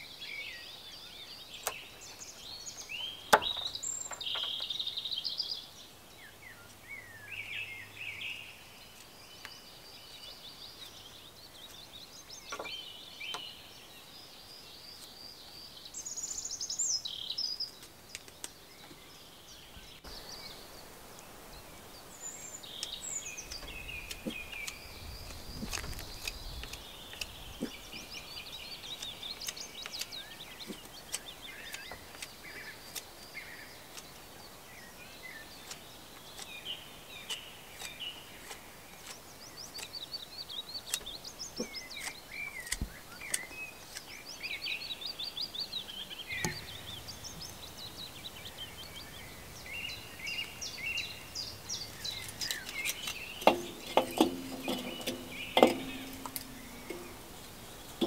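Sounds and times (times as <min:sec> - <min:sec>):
birds singing and chirping: 0:00.0 - 0:58.0
knife scraping wood: 0:23.4 - 0:34.3, 0:35.5 - 0:44.2, 0:51.9 - 0:58.0
sticks knocking on metal bowl: 0:53.5 - 0:57.2.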